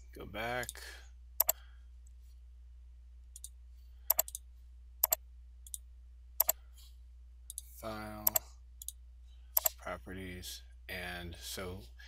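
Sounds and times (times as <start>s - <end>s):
faint low hum: 0.0s - 12.0s
computer mouse clicking: 4.1s - 4.4s, 5.0s - 5.8s, 7.5s - 9.0s.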